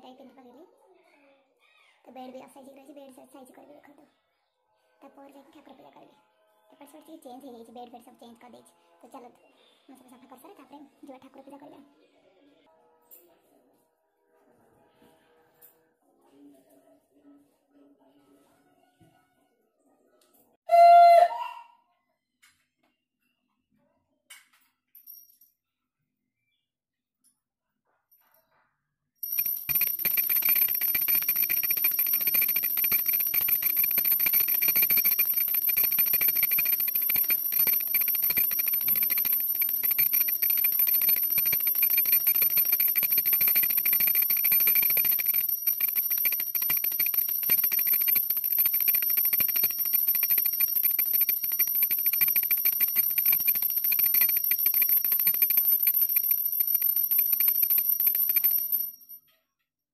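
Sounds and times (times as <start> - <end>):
hand bell ringing fast: 29.2 - 59.2.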